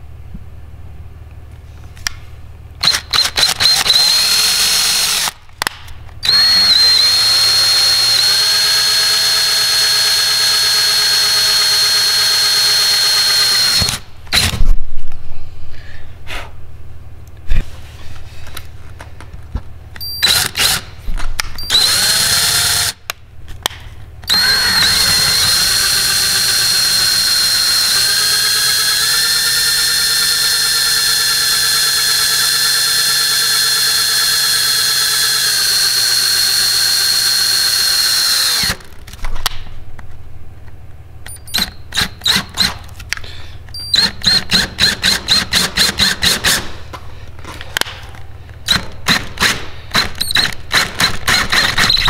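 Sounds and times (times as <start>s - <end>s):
power drill with hole saw: 2.8s - 5.4s, 6.2s - 14.5s, 20.2s - 20.8s, 21.6s - 23.0s, 24.3s - 38.9s, 48.7s - 52.0s.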